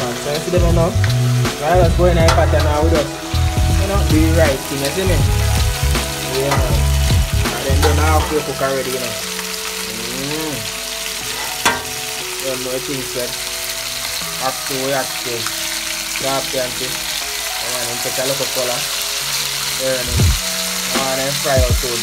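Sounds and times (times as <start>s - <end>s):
music with deep bass: 0.0s - 12.6s, 18.8s - 22.0s
fish frying in hot oil: 0.0s - 22.0s.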